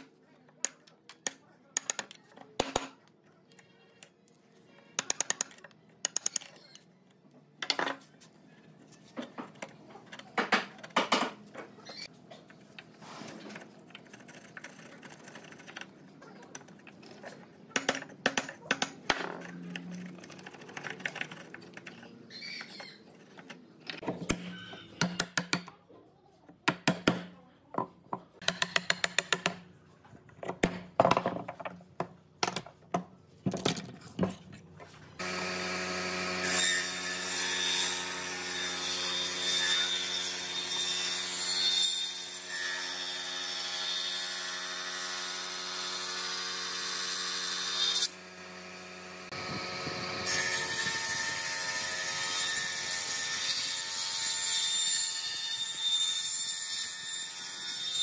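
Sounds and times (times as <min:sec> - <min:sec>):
chisel clicking and knocking wood: 0:00.0 - 0:03.0, 0:05.0 - 0:06.5, 0:16.5 - 0:22.1, 0:25.0 - 0:25.8, 0:26.6 - 0:27.3, 0:28.4 - 0:29.7
chisel scraping wood: 0:08.1 - 0:17.8.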